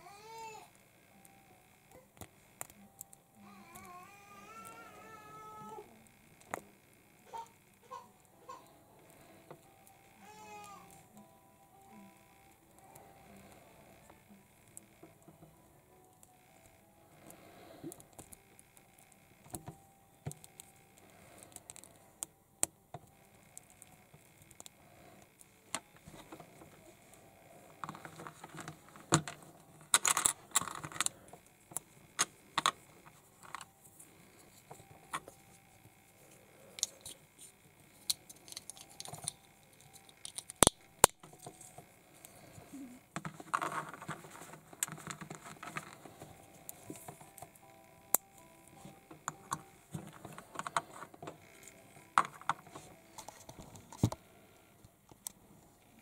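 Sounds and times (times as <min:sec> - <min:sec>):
plastic toy parts clicking and rattling: 0:27.7 - 0:33.7, 0:36.7 - 0:41.8, 0:42.7 - 0:54.2.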